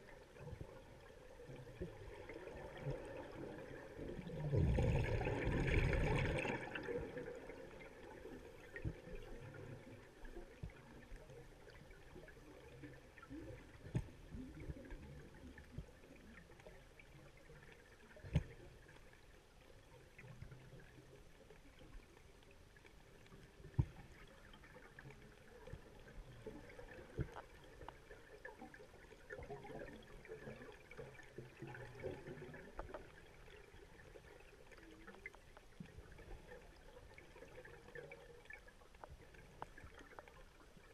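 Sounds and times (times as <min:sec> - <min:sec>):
underwater clicks and pops: 0:13.8 - 0:14.8, 0:18.2 - 0:18.6.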